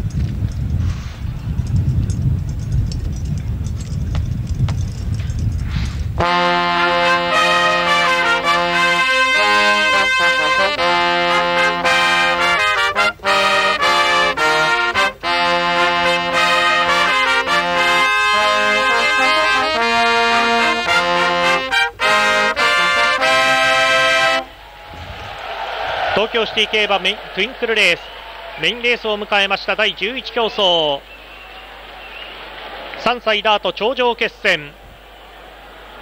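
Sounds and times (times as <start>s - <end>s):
brass band playing fanfare: 6.2s - 24.5s.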